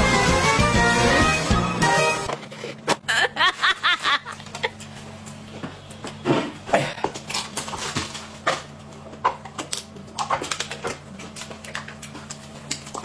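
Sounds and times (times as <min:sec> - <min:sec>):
eating noises: 0:08.8 - 0:13.0.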